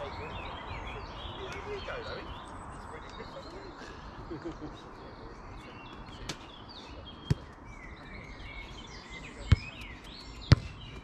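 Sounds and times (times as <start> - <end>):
birds chirping: 0.0 - 11.0
football kicked: 7.2 - 7.5, 9.5 - 9.8, 10.5 - 11.0.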